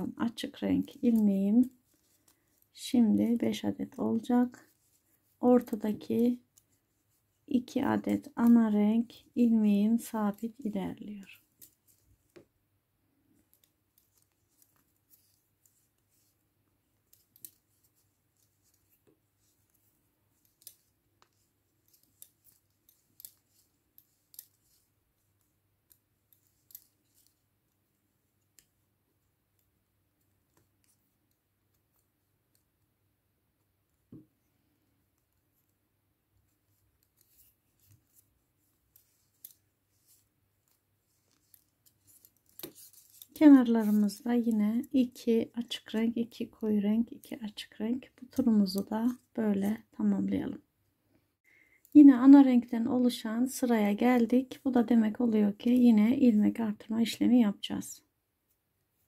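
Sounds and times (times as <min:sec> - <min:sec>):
knitting needles clicking: 0:00.0 - 0:06.8, 0:07.6 - 0:12.5, 0:13.3 - 0:35.8, 0:36.4 - 0:49.3.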